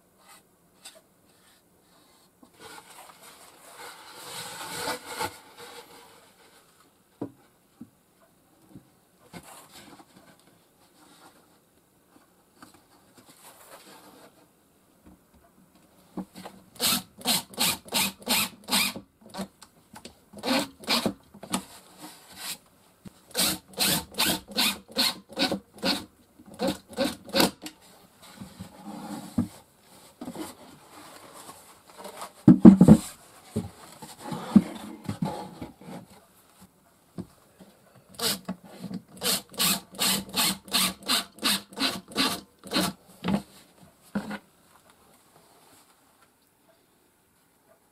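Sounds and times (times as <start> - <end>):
wood scraping: 0.2 - 6.8, 28.2 - 36.2.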